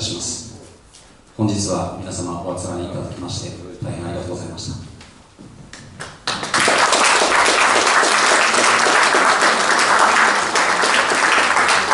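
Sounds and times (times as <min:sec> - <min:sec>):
audience applause: 0:06.0 - 0:11.9.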